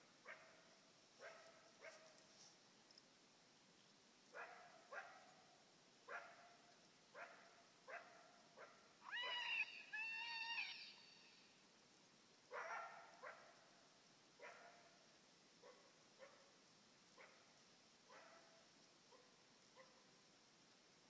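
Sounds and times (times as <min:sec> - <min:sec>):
coyote barking: 0:07.2 - 0:11.0, 0:12.5 - 0:13.6
coyote howl: 0:09.0 - 0:11.2.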